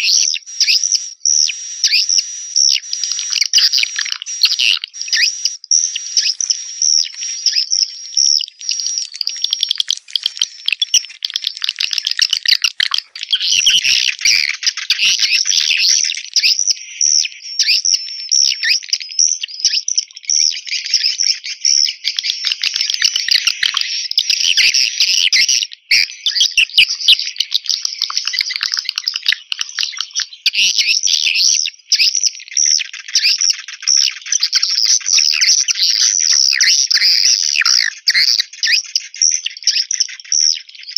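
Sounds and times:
swiftlets twittering: 3.6 - 16.1.

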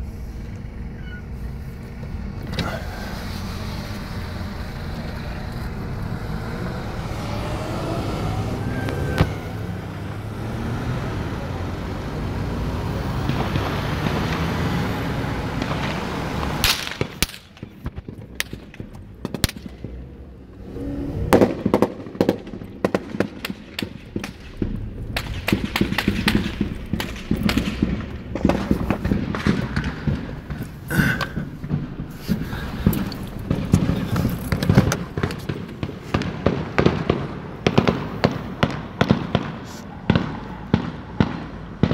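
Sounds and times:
road rumble: 0.0 - 41.9
vehicle engine: 0.0 - 41.9
gunfire cracks: 15.6 - 19.9, 21.4 - 41.9.

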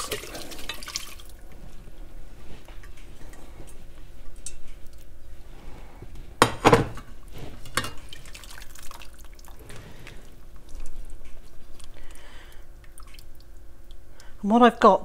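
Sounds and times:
liquid dripping and trickling: 0.0 - 1.6, 8.0 - 14.4.

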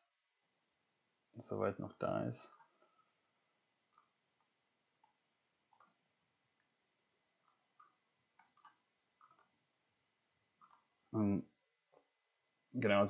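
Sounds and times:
computer mouse clicks: 3.9 - 4.2, 5.0 - 6.0, 7.4 - 9.6, 10.6 - 10.9.

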